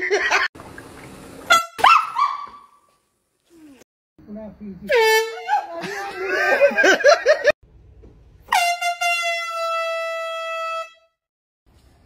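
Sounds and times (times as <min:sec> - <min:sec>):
air horn blasting: 0:01.5 - 0:01.8, 0:04.9 - 0:05.6, 0:08.4 - 0:11.2.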